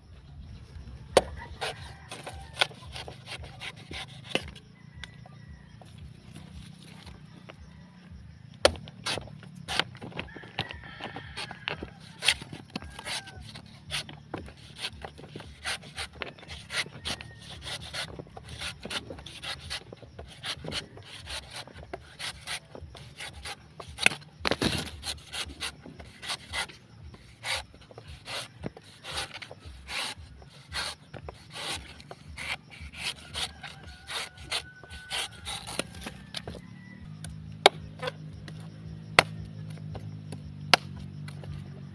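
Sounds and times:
machete chop: 1.1 - 4.6, 8.6 - 10.2, 12.1 - 36.6, 37.6 - 38.2, 39.1 - 41.5
machete scraping coconut husk: 1.1 - 5.1, 8.6 - 36.7, 37.6 - 41.7.

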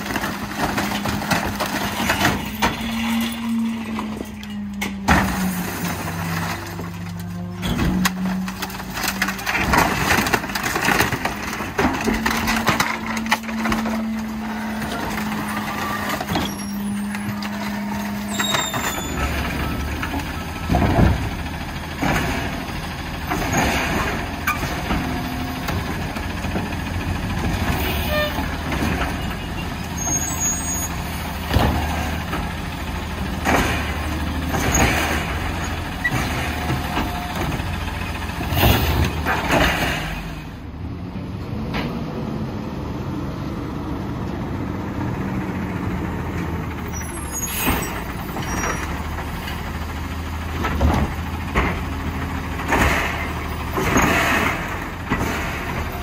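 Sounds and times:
hydraulic packer whining: 0.0 - 40.7
diesel engine running: 0.0 - 56.0.

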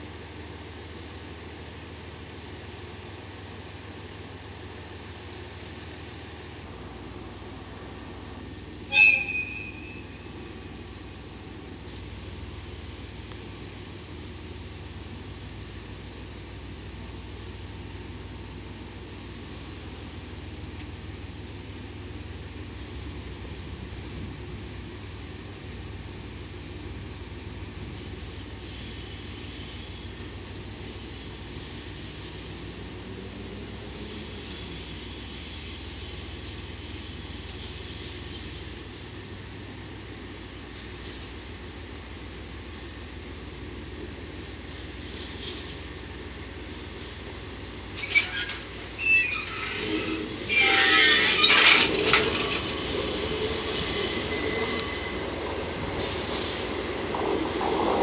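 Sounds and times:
locomotive engine drone: 0.0 - 58.0
high-pitched horn toot: 8.9 - 9.9
faint high squeal: 8.9 - 10.3, 11.9 - 14.7, 27.9 - 32.5, 33.8 - 38.7, 48.0 - 55.4.

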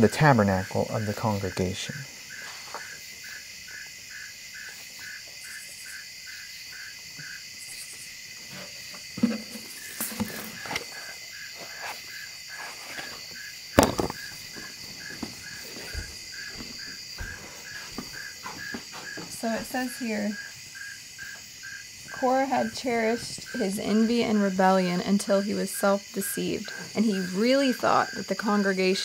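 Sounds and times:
crickets chirping: 0.0 - 29.0
high insect trill: 0.0 - 29.0
sharp knock: 13.8 - 14.2.

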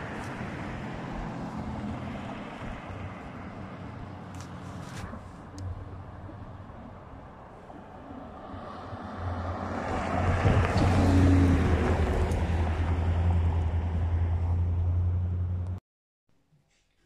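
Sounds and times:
diesel locomotive engine drone: 0.0 - 15.8
wind noise on microphone: 9.8 - 12.6.

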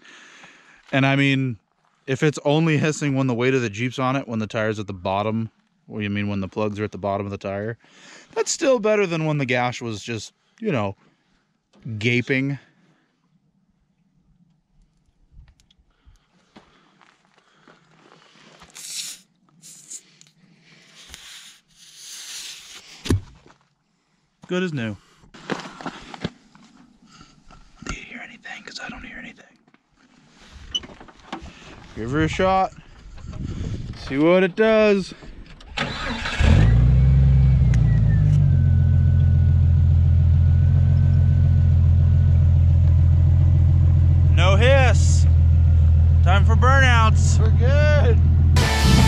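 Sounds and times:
tire plug tool scraping rubber: 21.0 - 23.2
car engine starting and idling: 35.5 - 49.0.

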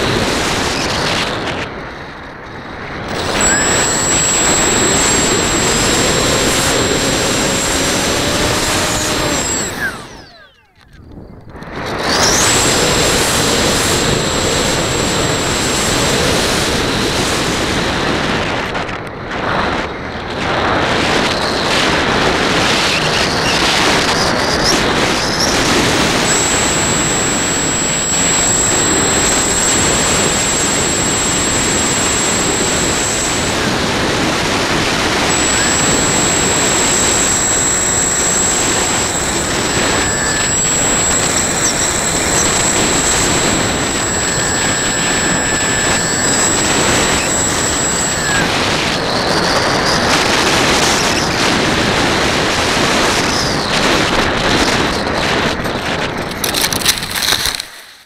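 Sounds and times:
thin high motor whine: 0.0 - 1.4, 2.9 - 18.0, 22.5 - 53.7
rushing air and motor noise: 3.1 - 10.7, 25.3 - 49.1.

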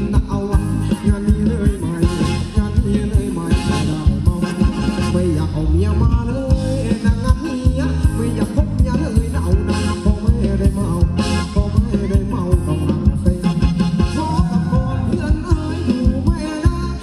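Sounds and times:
live band playing dance music: 0.0 - 17.0.

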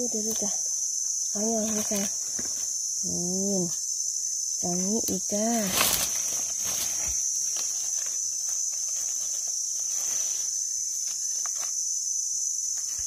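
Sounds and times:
high-pitched insect drone: 0.0 - 13.0
knife scraping dry leaf litter: 5.6 - 11.8.

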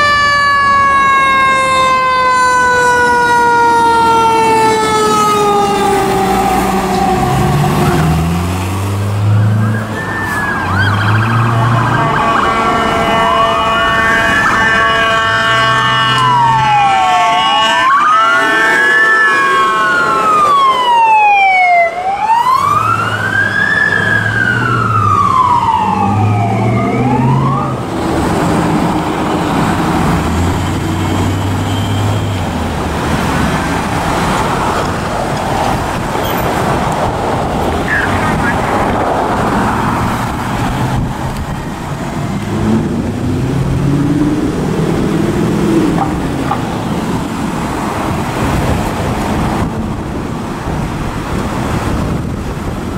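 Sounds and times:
siren dropping in pitch: 0.0 - 8.4, 9.2 - 27.9
wail siren rising and falling: 0.0 - 49.0
deep horn blasts: 11.4 - 20.0.

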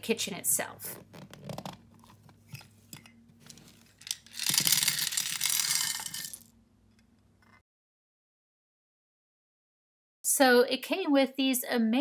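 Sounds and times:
tiny plastic pieces clattering on table: 2.9 - 6.5.

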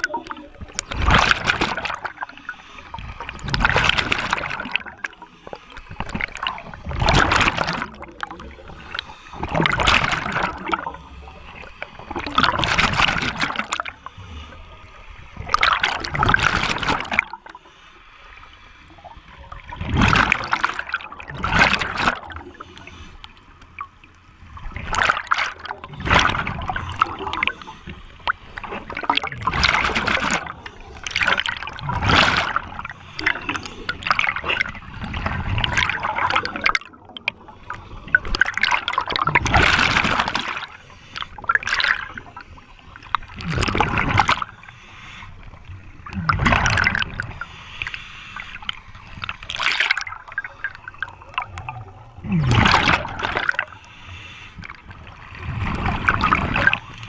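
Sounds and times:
air bubbles gurgling: 0.0 - 5.2, 5.8 - 13.9, 15.3 - 17.6, 19.0 - 22.6, 24.5 - 40.8, 41.4 - 44.6, 45.9 - 47.4, 48.6 - 53.8, 54.6 - 57.0
regulator breathing underwater: 2.1 - 3.7, 4.8 - 6.9, 8.4 - 12.6, 22.4 - 23.4, 25.8 - 28.3, 31.8 - 36.7, 40.6 - 57.0.

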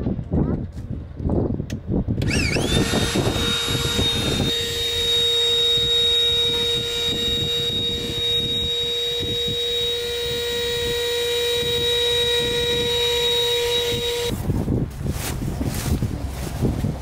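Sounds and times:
wind noise on microphone: 0.0 - 17.0
electric air pump humming: 2.2 - 14.4.

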